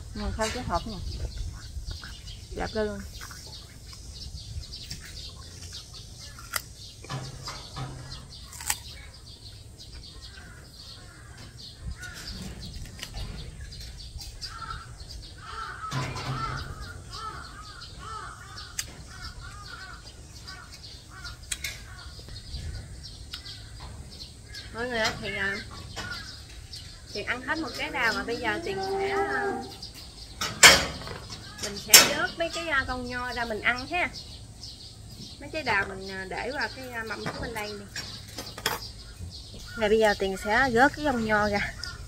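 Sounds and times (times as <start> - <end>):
birds chirping: 0.0 - 42.0
biting into crisp fruit: 8.2 - 9.2.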